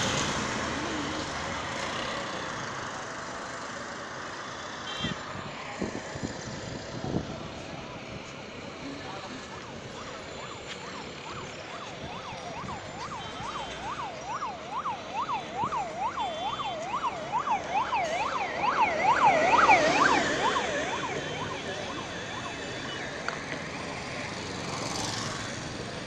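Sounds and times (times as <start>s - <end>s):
road traffic rushing: 0.0s - 26.0s
emergency siren yelping: 9.4s - 23.5s.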